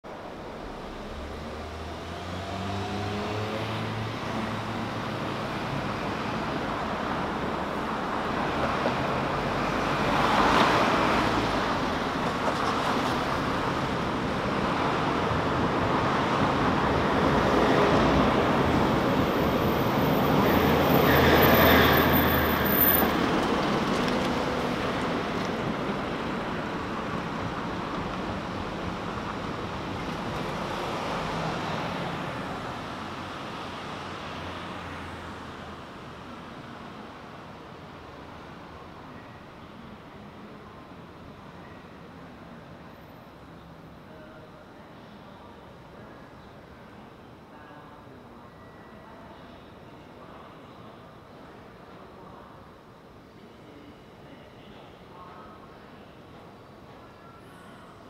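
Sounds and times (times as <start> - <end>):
steady road noise: 0.0 - 48.4
cars passing: 0.1 - 39.0
engine rising in pitch: 0.8 - 4.1.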